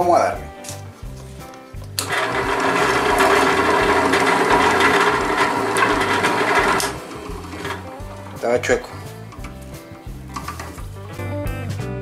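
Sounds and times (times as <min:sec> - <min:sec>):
drill press cutting wood: 0:02.0 - 0:09.1.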